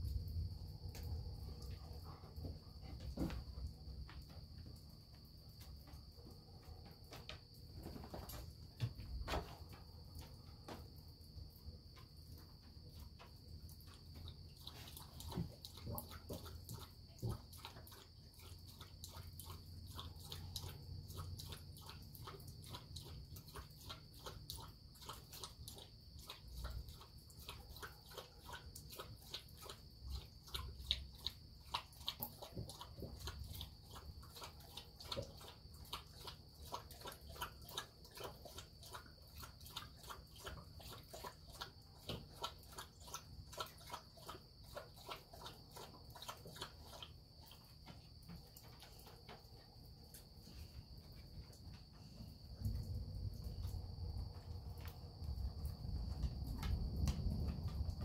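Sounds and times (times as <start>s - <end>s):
light irregular ticks: 0.0s - 58.0s.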